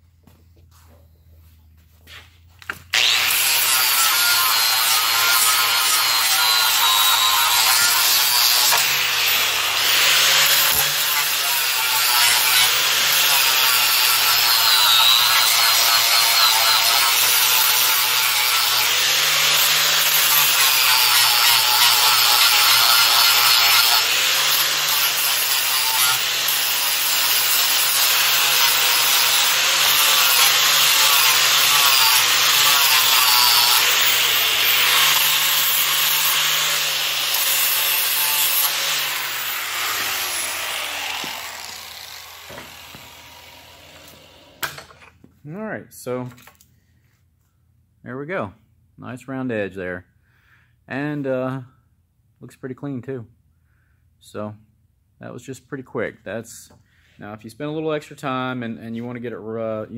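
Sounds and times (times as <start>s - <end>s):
angle grinder grinding steel: 2.7s - 45.2s
grinder spinning down: 2.9s - 45.0s.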